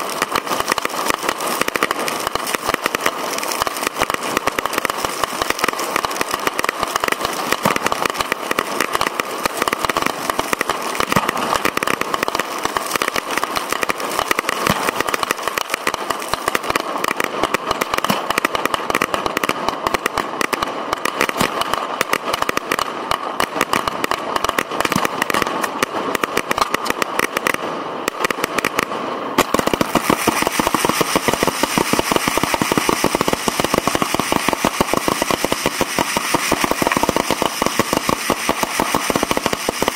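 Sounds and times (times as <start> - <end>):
fireworks tubes firing: 0.0 - 39.9.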